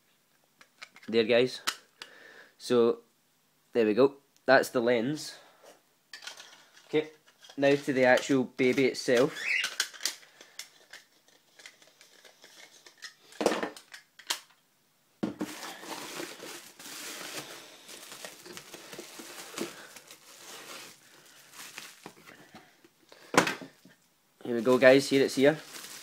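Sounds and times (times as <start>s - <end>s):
bubble-wrap and cardboard rustling: 15.4s - 22.7s, 24.5s - 26.0s.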